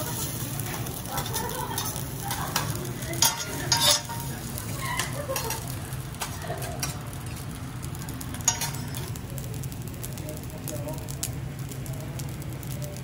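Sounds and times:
rice sizzling on a griddle: 0:00.0 - 0:13.0
metal spatulas scraping and clacking: 0:01.2 - 0:07.0, 0:08.4 - 0:09.1.

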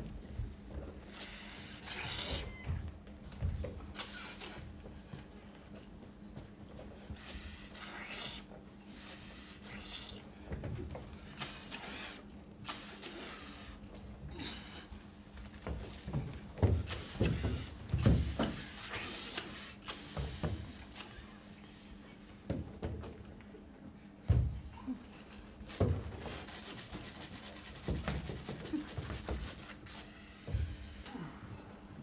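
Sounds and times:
people hissing with mouths: 0:01.1 - 0:02.5, 0:04.0 - 0:04.7, 0:07.2 - 0:10.2, 0:11.4 - 0:13.8, 0:16.9 - 0:22.2, 0:28.6 - 0:31.1
bodies thumping on wooden stage: 0:15.6 - 0:18.6, 0:24.2 - 0:24.8.

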